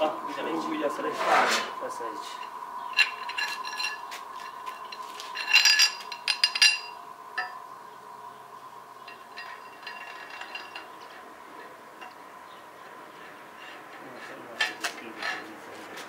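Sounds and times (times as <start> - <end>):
metal parts clinking: 2.4 - 7.6, 9.0 - 11.3.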